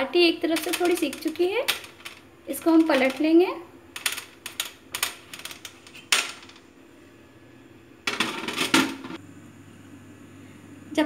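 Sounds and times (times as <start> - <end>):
clicking and rattling: 0.5 - 3.3.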